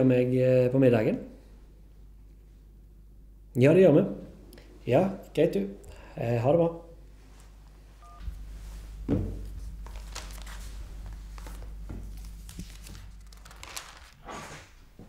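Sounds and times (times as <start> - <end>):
low steady hum: 0.0 - 15.0
soft thump on desk: 9.1 - 9.4.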